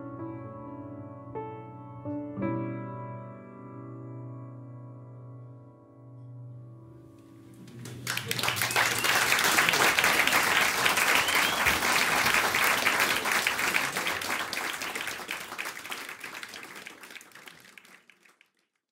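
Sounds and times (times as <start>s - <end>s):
audience clapping: 7.5s - 18.8s.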